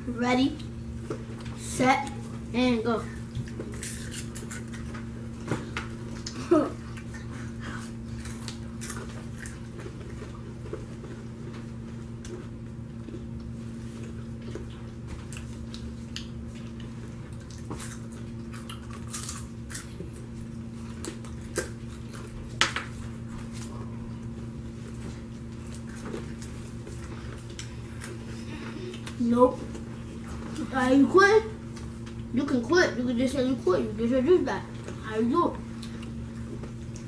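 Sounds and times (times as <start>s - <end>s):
steady low hum: 0.0s - 37.0s
people crunching popcorn: 3.4s - 5.0s, 6.1s - 11.2s, 13.0s - 22.8s.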